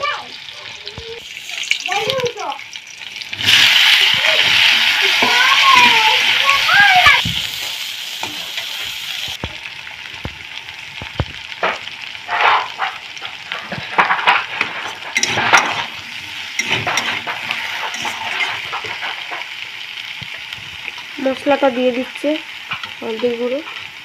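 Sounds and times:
vegetables frying in hot oil: 0.0 - 24.0
metal spatula scraping a pan: 12.2 - 19.6.

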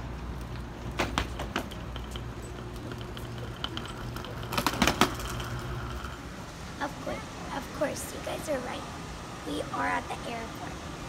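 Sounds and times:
steady low hum: 0.0 - 11.0
wheeled suitcases clattering: 0.5 - 6.3.

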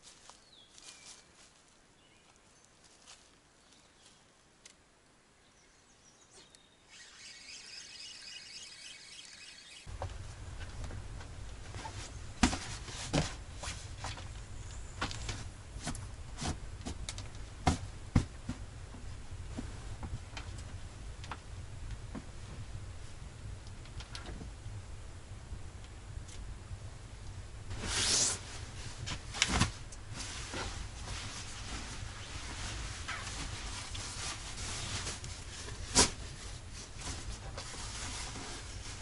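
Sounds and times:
high-pitched chirping: 6.4 - 9.9
low hum: 6.9 - 29.0.

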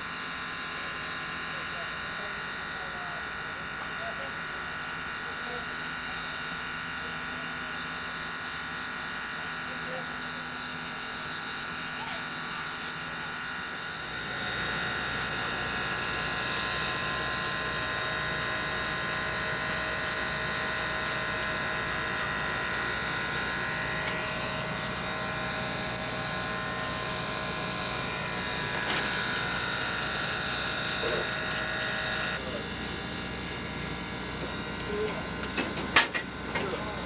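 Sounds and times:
steam locomotive running: 11.2 - 37.0.

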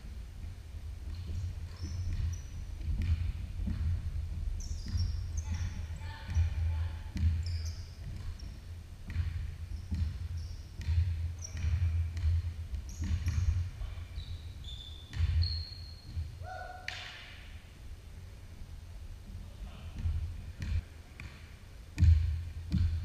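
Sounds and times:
sneaker squeaks: 1.1 - 3.8, 4.6 - 17.5
basketball bouncing on wood floor: 1.1 - 17.1, 20.0 - 23.0.

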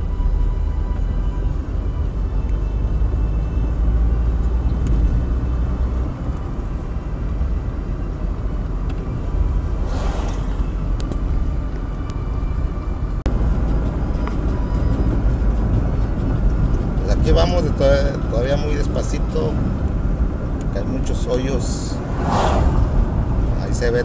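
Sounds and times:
car rumbling on rough road: 0.0 - 24.0
rushing hiss: 9.8 - 10.8.

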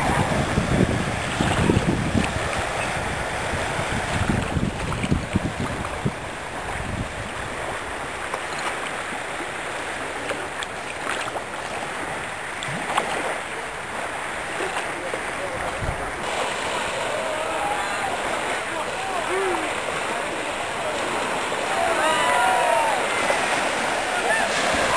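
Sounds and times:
wind buffeting microphone: 0.0 - 8.2, 15.5 - 24.9
sea water lapping on shore: 0.0 - 24.9.

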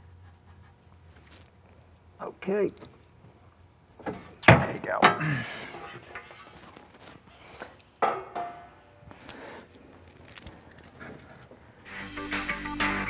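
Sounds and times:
handling noises: 8.0 - 11.8.

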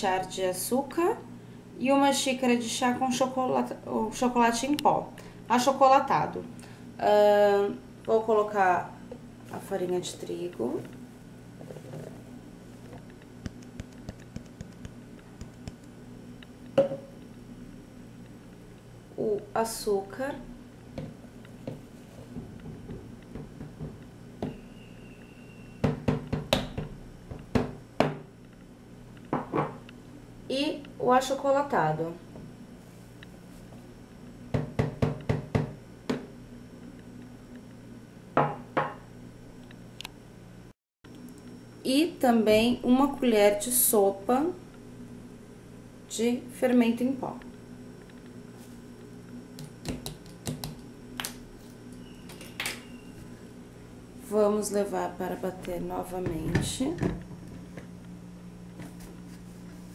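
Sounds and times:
faint steady hum: 0.0 - 59.9
cup knocking against blender jar: 16.8 - 17.1, 29.3 - 29.8.

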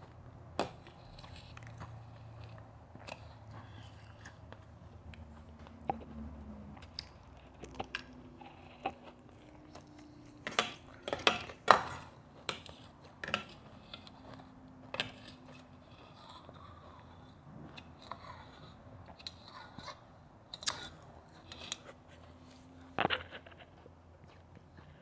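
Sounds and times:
chewing and crunching ice: 0.0 - 25.0.

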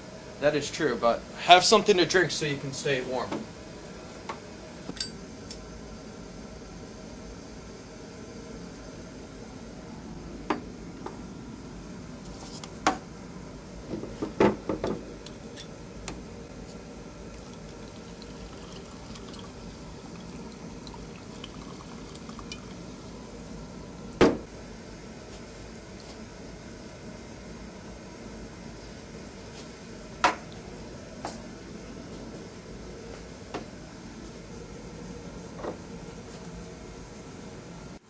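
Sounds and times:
steady background hiss: 0.0 - 38.0
drink pouring: 16.6 - 23.1.

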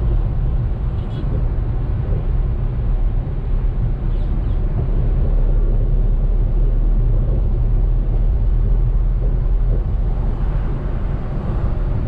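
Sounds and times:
car driving on road: 0.0 - 12.0.

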